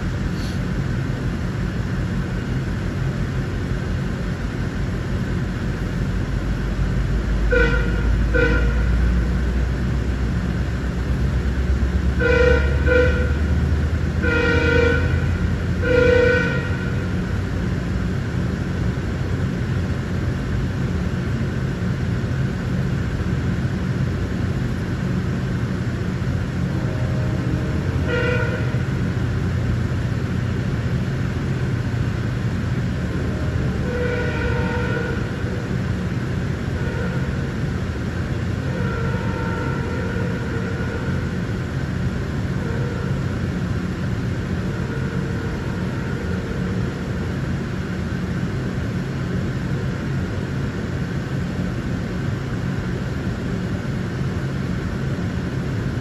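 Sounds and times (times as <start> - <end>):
train rumbling past: 0.0 - 56.0
locomotive horn blasts: 7.3 - 9.2, 12.1 - 17.4, 26.4 - 30.6, 32.9 - 41.6, 42.2 - 43.8, 44.5 - 47.4.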